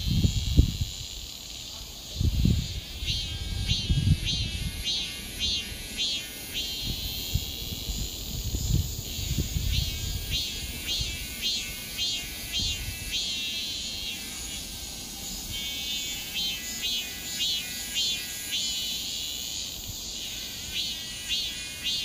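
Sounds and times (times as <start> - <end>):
cicada buzzing: 0.0 - 22.0.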